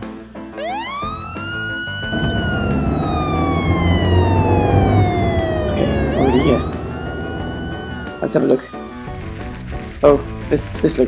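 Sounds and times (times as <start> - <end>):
fire engine siren wailing: 0.6 - 9.2
low rumble: 2.0 - 8.5.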